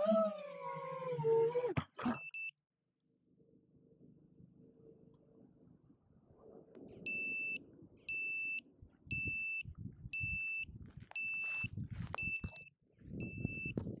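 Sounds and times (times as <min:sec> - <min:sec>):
footsteps: 0:10.8 - 0:13.2.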